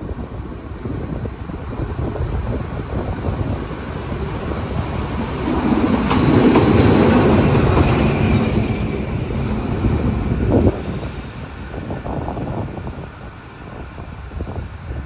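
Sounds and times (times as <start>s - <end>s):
diesel locomotive engine rumble: 0.0s - 15.0s.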